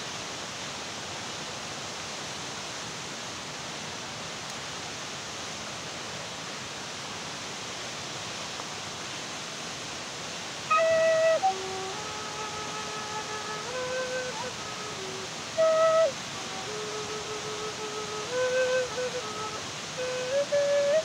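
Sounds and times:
steady rushing hiss: 0.0 - 21.0
flute-like wind instrument: 10.6 - 21.0.

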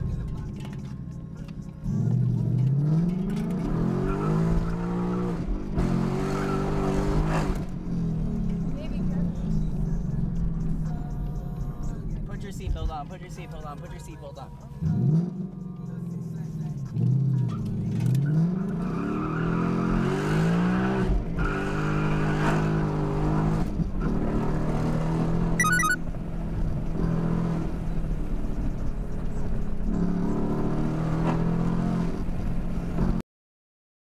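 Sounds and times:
rapid electronic beeps: 25.6 - 26.0.

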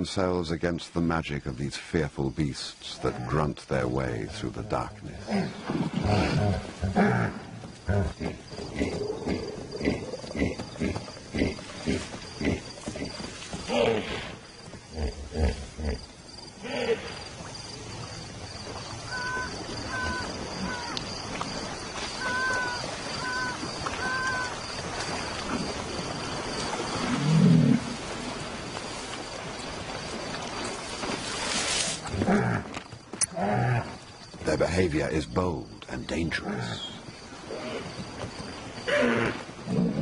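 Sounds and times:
high insect trill: 0.0 - 40.0
hippopotamus grunting: 3.0 - 16.0, 32.1 - 34.0.

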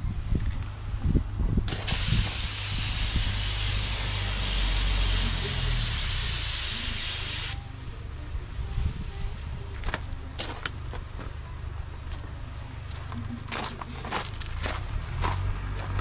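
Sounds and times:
spray gun hissing: 1.8 - 7.6.

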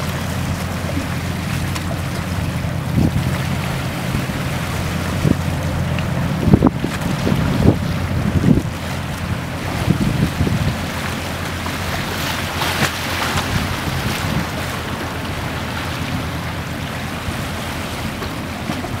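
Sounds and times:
boat diesel engines droning: 0.0 - 19.0
sea waves washing: 0.0 - 19.0
wind on microphone: 2.2 - 19.0.

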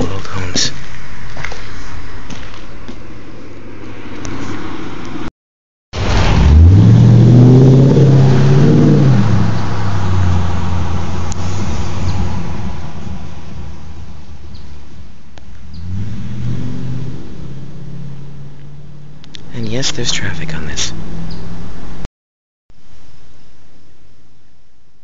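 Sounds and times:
car accelerating past: 6.0 - 13.5, 15.6 - 19.3.

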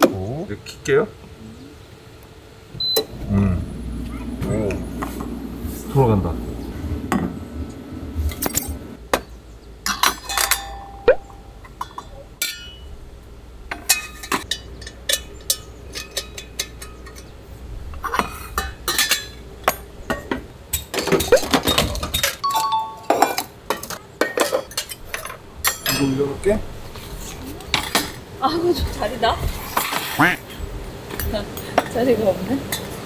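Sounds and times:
low steady hum: 0.0 - 32.9
steel cups clinking on metal table: 9.8 - 12.9, 13.7 - 17.3, 18.5 - 26.2.

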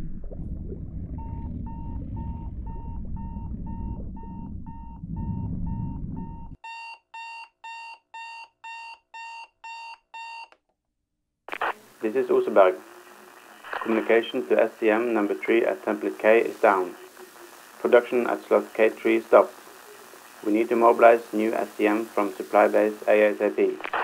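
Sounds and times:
low underwater rumble: 0.0 - 6.6
electronic alarm beeping: 1.2 - 10.5.

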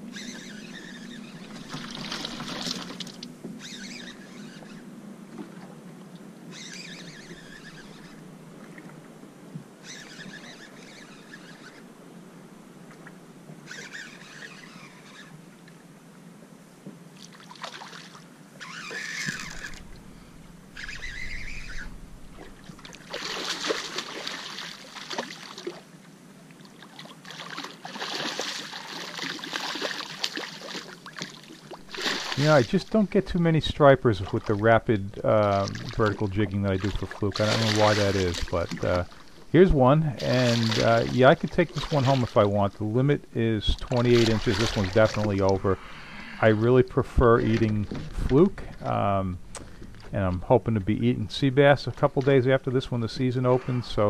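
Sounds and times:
fishing reel winding: 0.1 - 4.8, 6.5 - 8.2, 9.8 - 11.8, 13.7 - 15.3, 18.6 - 19.8, 20.8 - 22.0
fish splashing at surface: 20.8 - 25.8, 26.7 - 33.1, 40.2 - 42.5, 43.9 - 46.1.

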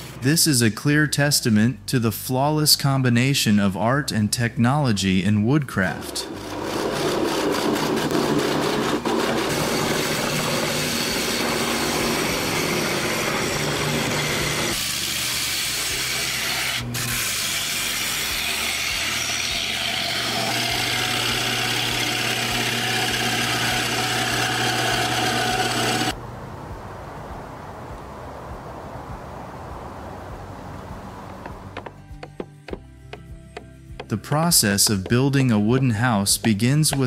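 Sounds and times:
power machinery cutting wood: 5.8 - 26.2.

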